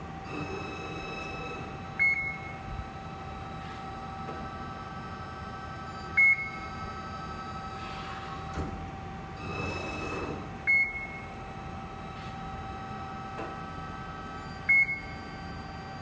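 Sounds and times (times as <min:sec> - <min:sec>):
hydraulic unit humming: 0:00.0 - 0:16.0
short high beeps: 0:14.4 - 0:15.2.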